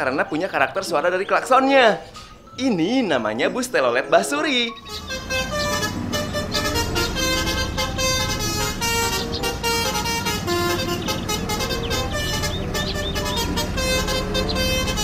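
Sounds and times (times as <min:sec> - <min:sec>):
bus engine rumble: 0:04.7 - 0:15.0
multi-tone bus horn playing a tune: 0:04.8 - 0:15.0.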